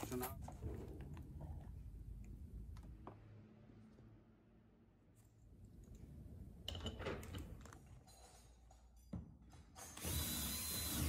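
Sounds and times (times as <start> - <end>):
cordless drill running: 10.0 - 11.0.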